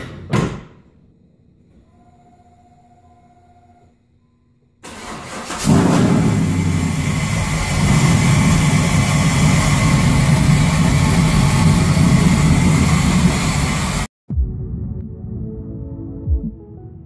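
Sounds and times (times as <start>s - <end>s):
car engine idling: 4.9s - 14.1s
soft music: 14.3s - 17.0s.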